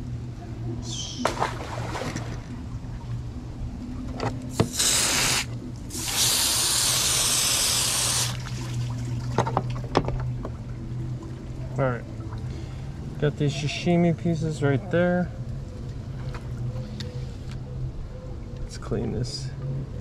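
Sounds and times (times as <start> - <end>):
low hum: 0.0 - 18.7
hose spraying on plastic table: 4.5 - 8.4.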